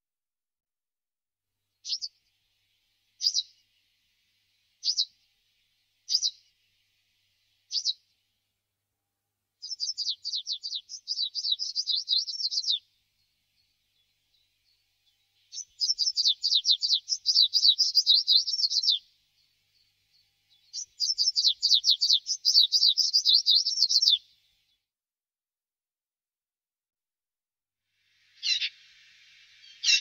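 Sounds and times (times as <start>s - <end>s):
warbler singing: 1.8s - 8.2s, 9.6s - 24.9s, 28.3s - 30.0s.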